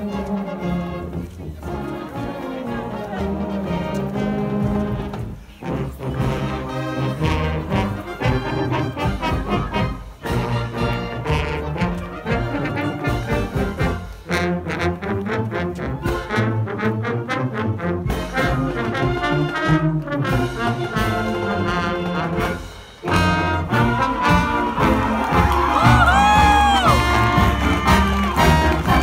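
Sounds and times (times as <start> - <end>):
marching band brass playing: 0.0 - 29.0.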